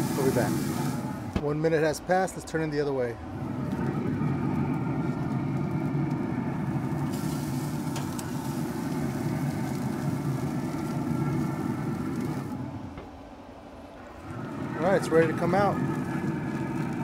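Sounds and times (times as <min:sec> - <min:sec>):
meat sizzling on grill: 0:00.0 - 0:01.3, 0:04.0 - 0:12.6, 0:14.5 - 0:17.0
grill fan hum: 0:00.0 - 0:17.0.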